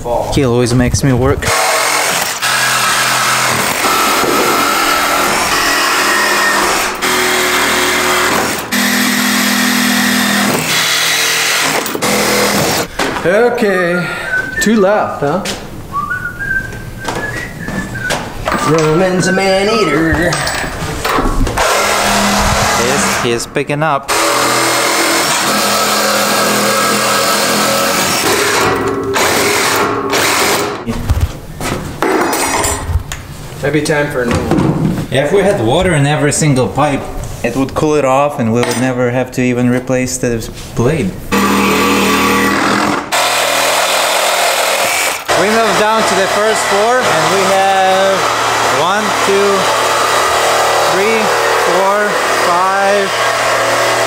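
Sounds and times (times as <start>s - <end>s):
reciprocating saw cutting metal pipe: 1.5s - 12.9s, 21.6s - 23.4s, 24.1s - 30.7s, 41.3s - 54.0s.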